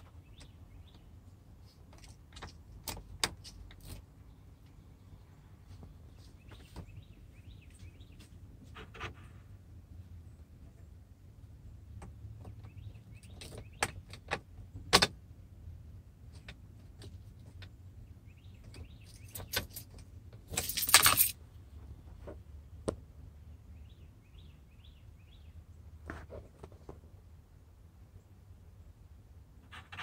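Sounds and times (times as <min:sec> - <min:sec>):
car keys clicking and jangling: 0:19.0 - 0:21.4.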